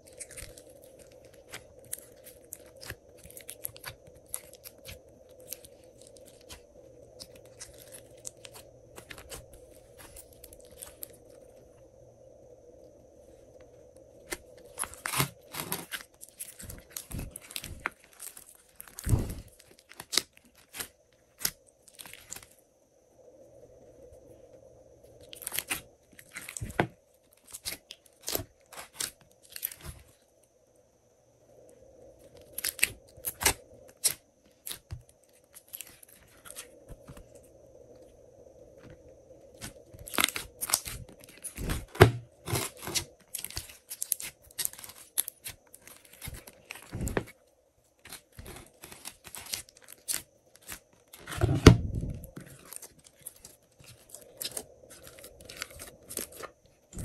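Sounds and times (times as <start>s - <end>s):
hands squishing sticky slime: 0.0s - 11.2s, 14.2s - 22.5s, 25.3s - 30.1s, 39.5s - 47.3s.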